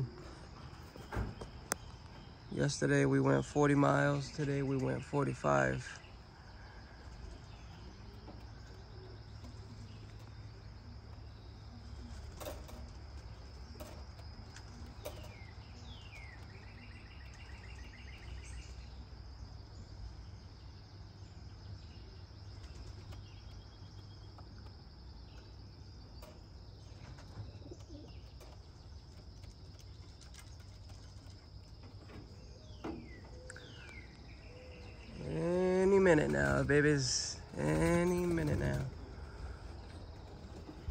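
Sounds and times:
high insect drone: 0.0s - 40.9s
bird trill: 14.7s - 19.1s.

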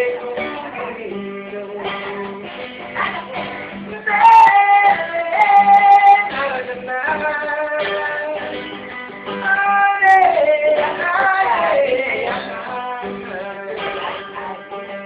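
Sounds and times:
acoustic guitar strumming: 0.0s - 15.0s
man singing: 0.0s - 15.0s.

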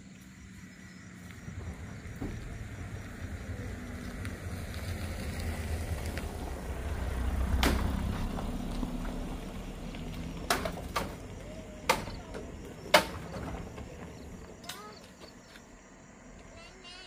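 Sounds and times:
vehicle engine running: 0.0s - 12.8s.

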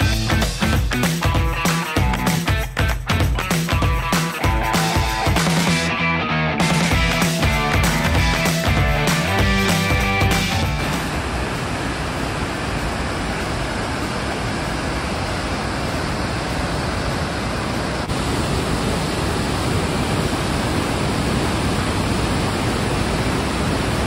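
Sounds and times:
waterfall and rapids rushing: 7.4s - 24.0s.

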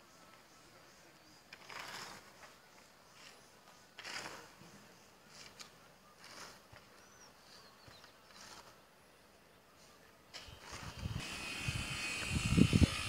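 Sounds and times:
faint high bird chirps: 0.1s - 10.1s.

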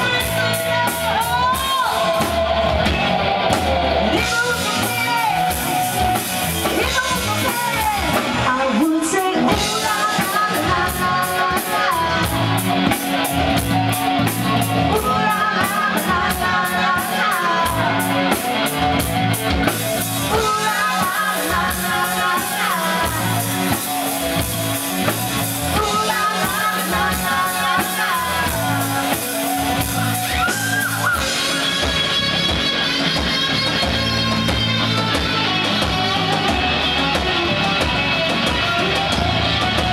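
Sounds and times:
woman singing: 0.0s - 2.8s, 4.1s - 13.6s, 14.6s - 18.7s, 19.6s - 24.5s, 25.6s - 34.2s
electric guitar: 0.0s - 39.9s
live rock band playing: 0.0s - 39.9s.

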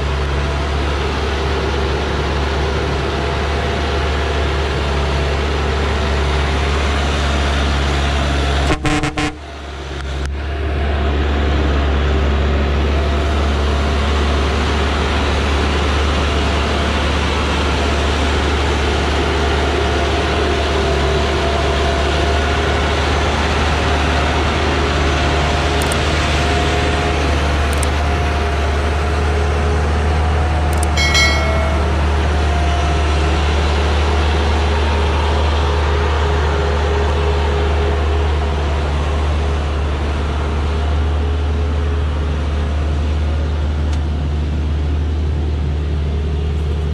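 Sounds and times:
truck diesel engine running low: 0.0s - 46.9s
short horn toot: 8.7s - 9.5s.

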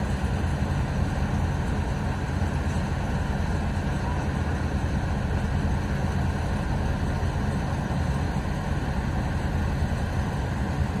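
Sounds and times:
heavy engine running: 0.0s - 11.0s.

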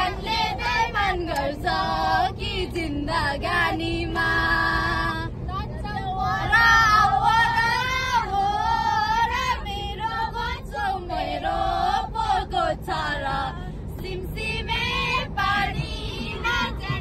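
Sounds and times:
young women singing together: 0.0s - 5.4s, 6.0s - 17.0s
low rumble of moving car: 0.0s - 17.0s.

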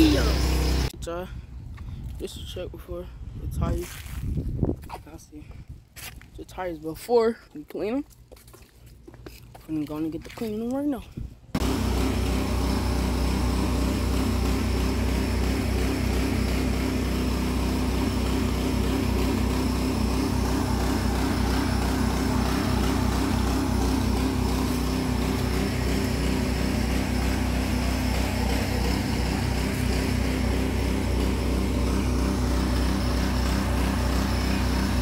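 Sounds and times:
small petrol engine running: 0.0s - 0.9s, 11.5s - 35.0s.

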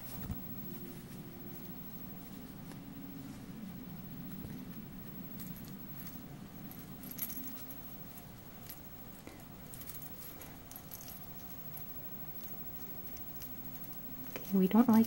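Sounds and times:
steady low hum: 0.0s - 15.0s
plastic toy ball jingling: 5.3s - 15.0s.

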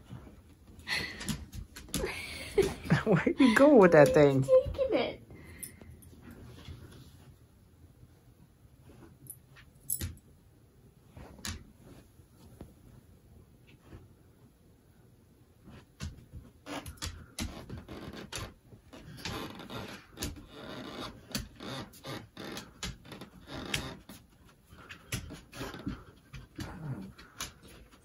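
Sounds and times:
dog claws clicking on wood floor: 16.0s - 28.0s.

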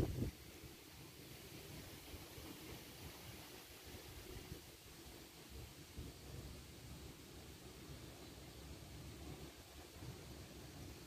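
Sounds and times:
wind buffeting microphone: 0.0s - 0.5s.

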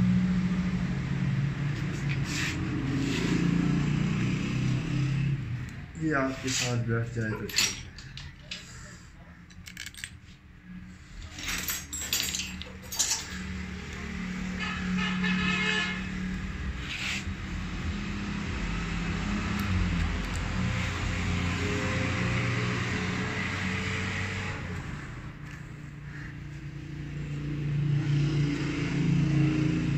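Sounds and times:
metal parts clinking: 6.4s - 10.4s, 11.1s - 13.7s.

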